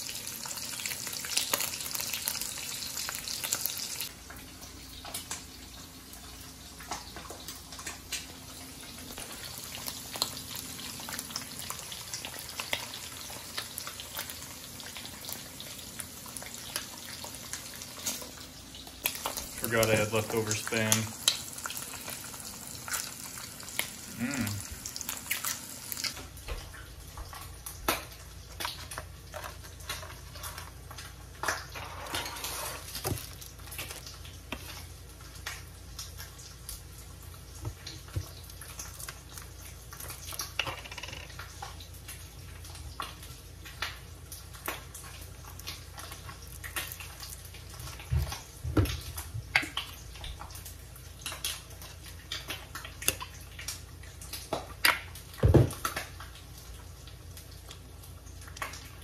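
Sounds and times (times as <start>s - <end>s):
meat frying in a skillet: 0.0s - 59.0s
dishes and packaging clattering: 28.1s - 34.9s.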